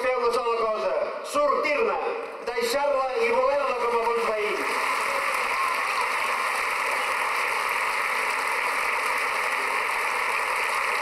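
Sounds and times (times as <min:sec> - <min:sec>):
crowd applauding and cheering: 0:03.8 - 0:11.0.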